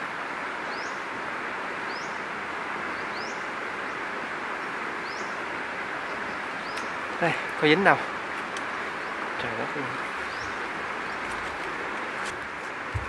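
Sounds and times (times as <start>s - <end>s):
outdoor background hiss: 0.0s - 13.0s
bird chirping: 4.6s - 5.4s, 6.0s - 13.0s.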